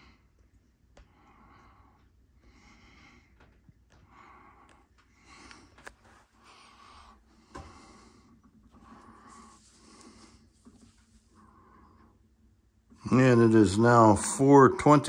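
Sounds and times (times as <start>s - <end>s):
person breathing softly: 1.0s - 12.5s.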